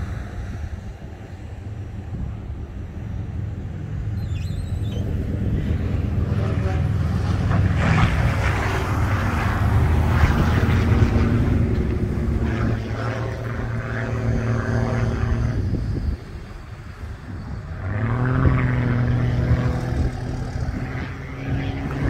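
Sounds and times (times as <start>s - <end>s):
propeller plane engine droning: 0.0s - 22.0s.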